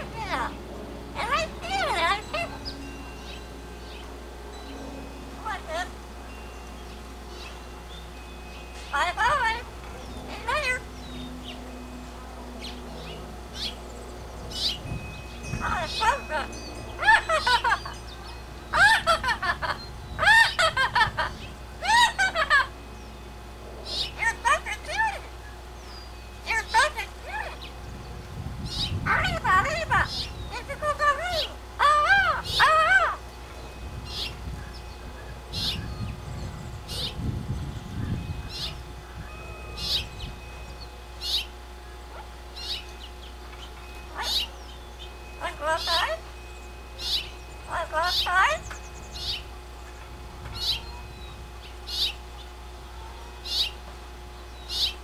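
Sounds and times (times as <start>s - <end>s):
parrot calling: 0.0s - 4.1s, 5.4s - 6.0s, 8.8s - 11.7s, 12.5s - 22.8s, 23.8s - 27.8s, 28.7s - 33.3s, 38.0s - 53.8s, 54.6s - 55.0s.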